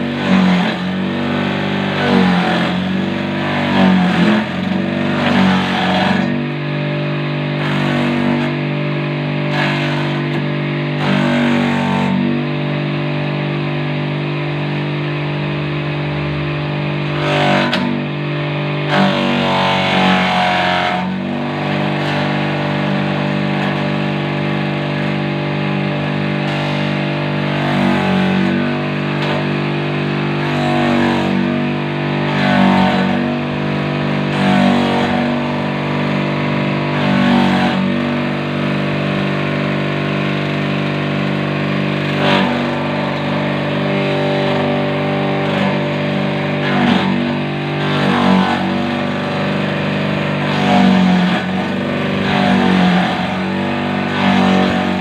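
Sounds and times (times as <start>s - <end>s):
water pump motor humming: 0.0s - 55.0s.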